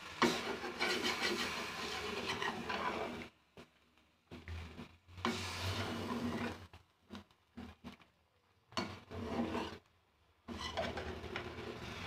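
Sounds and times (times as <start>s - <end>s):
metal spoon scraping metal pan: 0.2s - 3.3s, 8.8s - 9.9s, 10.5s - 12.0s.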